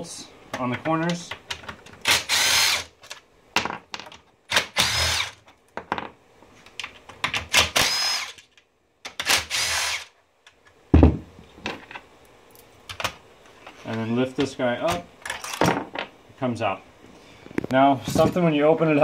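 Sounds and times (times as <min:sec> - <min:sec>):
cordless drill spinning: 0:02.1 - 0:02.9, 0:04.5 - 0:05.4, 0:07.7 - 0:08.4, 0:09.2 - 0:10.1
heavy thump: 0:10.9 - 0:11.3.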